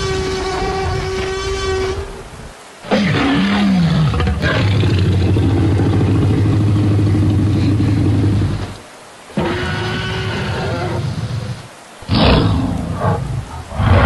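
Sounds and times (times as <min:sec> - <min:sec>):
dinosaur roaring: 0:02.8 - 0:14.0.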